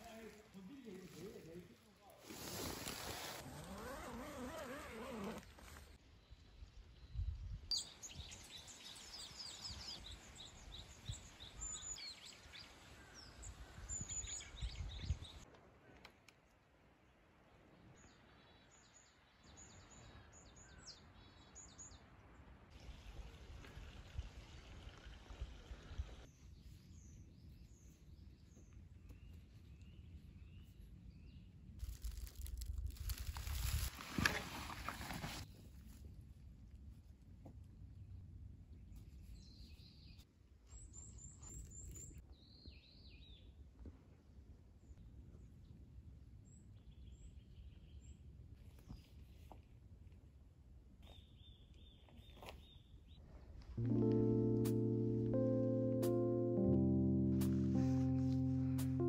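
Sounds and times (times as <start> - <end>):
footsteps crunching dry leaves: 31.8 - 35.5.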